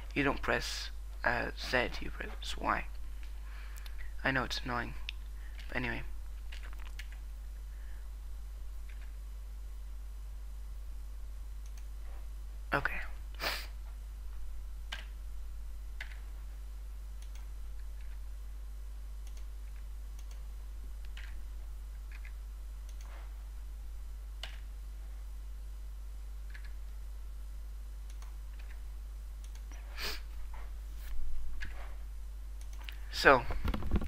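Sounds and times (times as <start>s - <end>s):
steady low hum: 0.0s - 34.0s
computer mouse clicks: 6.5s - 7.2s, 8.8s - 9.2s, 11.6s - 11.9s, 14.9s - 15.1s, 16.0s - 16.2s, 17.2s - 18.2s, 19.2s - 20.4s, 21.0s - 21.4s, 22.0s - 23.3s, 24.4s - 24.7s, 26.5s - 27.0s, 28.0s - 28.8s, 29.4s - 29.8s, 32.6s - 33.0s.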